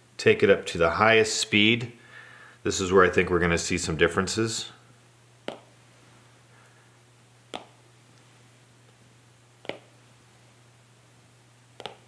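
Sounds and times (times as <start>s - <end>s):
faint low hum: 0.0s - 12.0s
stylus tapping glass screen: 9.6s - 9.9s.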